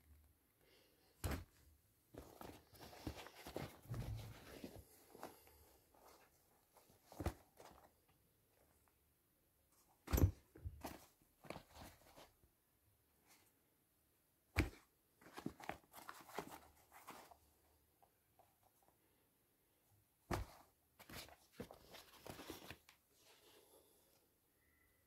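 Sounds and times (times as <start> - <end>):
shoes rustling and knocking: 1.2 - 7.9, 14.6 - 17.4, 20.3 - 22.9.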